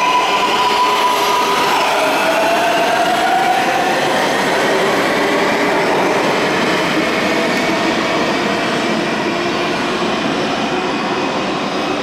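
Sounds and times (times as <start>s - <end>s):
train rumbling on rails: 0.0s - 12.0s.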